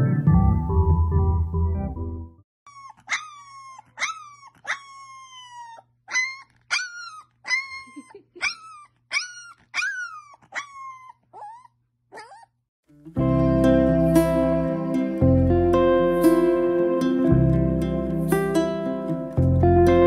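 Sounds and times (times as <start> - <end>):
puppy howling: 2.7 - 12.4.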